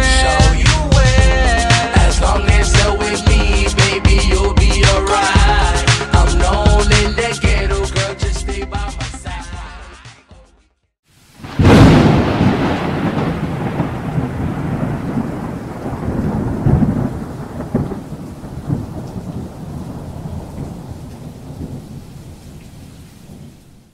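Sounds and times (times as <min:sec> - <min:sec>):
steady rain: 0:11.1 - 0:23.9
loud thunderclap: 0:11.4 - 0:22.4
thunder rumbling: 0:11.4 - 0:23.9.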